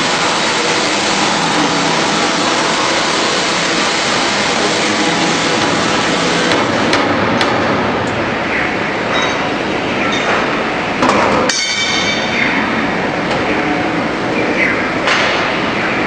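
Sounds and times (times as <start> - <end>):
seeds streaming through sorter machine: 0.0 - 7.0.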